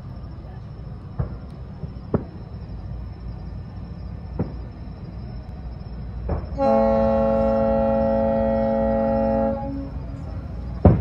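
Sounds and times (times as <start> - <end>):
steady low rumble: 0.0 - 11.0
distant fireworks booming: 1.0 - 3.2, 4.0 - 5.2, 6.0 - 7.3, 10.6 - 11.0.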